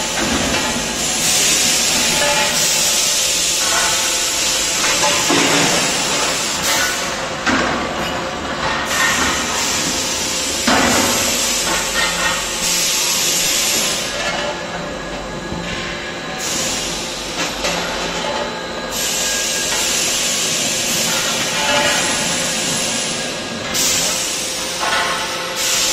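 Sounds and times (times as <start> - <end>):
machine hissing: 0.0 - 7.3, 8.9 - 14.2, 16.3 - 17.4, 18.9 - 25.9
constant machine hum: 0.0 - 25.9.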